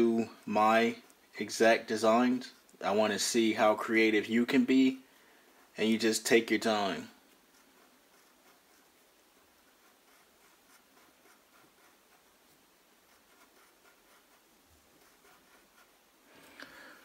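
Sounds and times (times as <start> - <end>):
pencil scratching on paper: 5.6 - 16.2.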